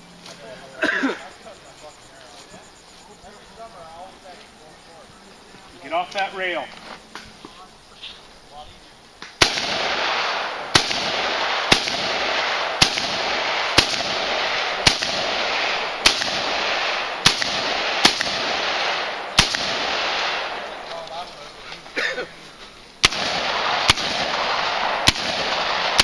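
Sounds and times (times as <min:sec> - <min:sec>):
rifle gunshots: 0:09.4 - 0:20.9, 0:23.0 - 0:26.0.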